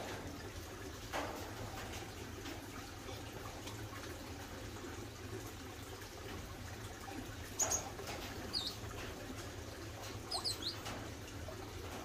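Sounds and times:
finches chirping: 8.5 - 8.8, 10.2 - 10.8.

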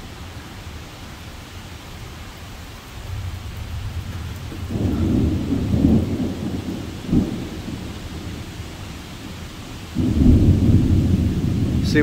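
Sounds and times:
steady rain: 0.0 - 12.0
strong wind: 2.6 - 12.0
deep thunder rumble: 3.1 - 12.0.

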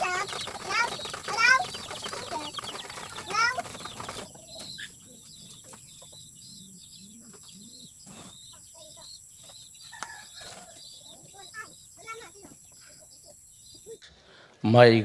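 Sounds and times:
pigeon wings flapping: 0.0 - 4.4
chicken clucking: 0.0 - 14.0
pigeons cooing: 0.0 - 14.0
small birds chirping: 0.0 - 14.6.

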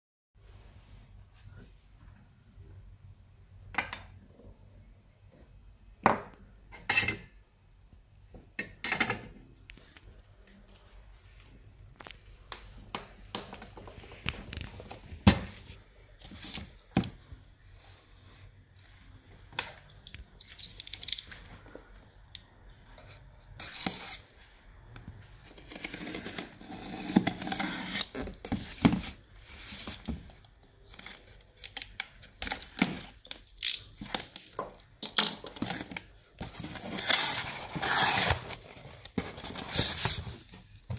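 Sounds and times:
rustling and scraping: 35.5 - 40.9.

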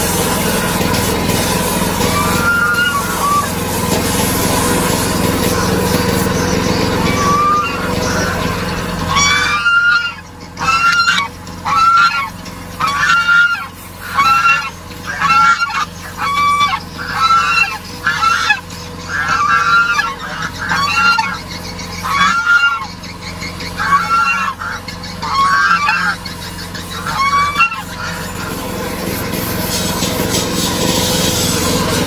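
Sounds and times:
goose honking: 0.0 - 32.0.

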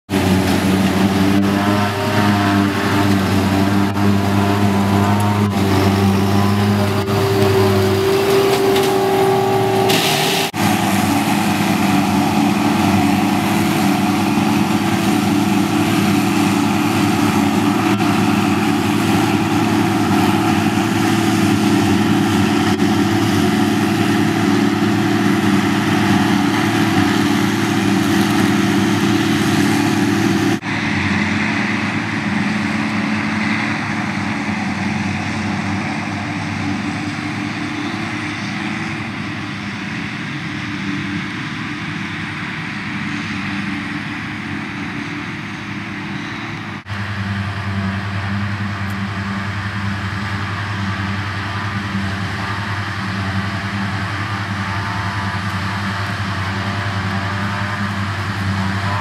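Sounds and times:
heavy diesel farm machinery: 0.1 - 59.0.

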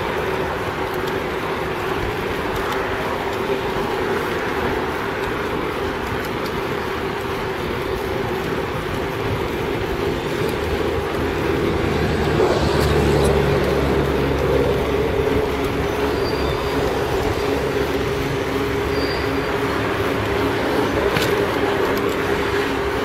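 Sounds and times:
road rumble: 0.0 - 23.0
wind: 0.0 - 23.0.

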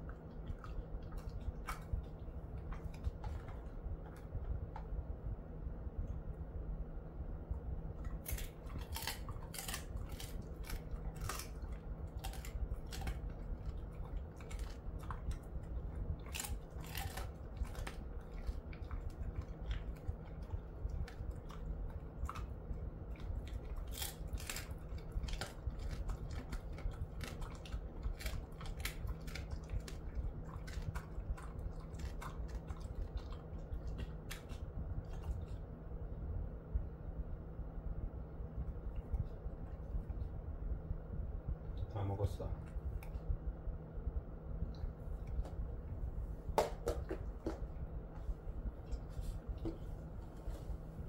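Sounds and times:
dog chewing a hard treat: 8.0 - 35.6.

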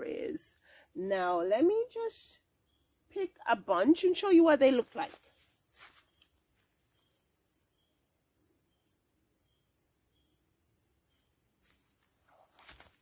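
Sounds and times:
crickets trilling: 0.0 - 13.0
faint rustle: 4.8 - 7.7, 11.1 - 13.0.

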